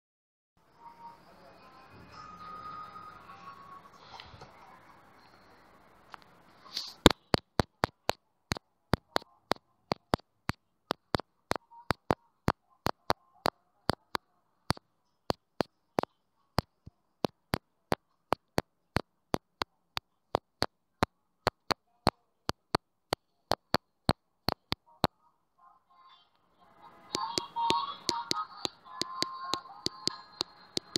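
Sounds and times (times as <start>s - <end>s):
sharp clicks: 6.1s - 12.2s, 12.9s - 13.2s, 13.9s - 14.2s, 18.3s - 18.6s, 19.4s - 19.7s, 20.4s - 20.7s, 21.5s - 21.8s, 22.5s - 23.8s, 24.5s - 24.9s, 27.2s - 30.9s.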